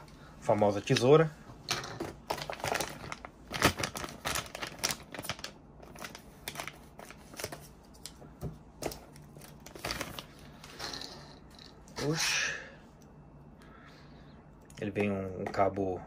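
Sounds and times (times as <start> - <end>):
plastic bag crinkling: 2.2 - 7.6.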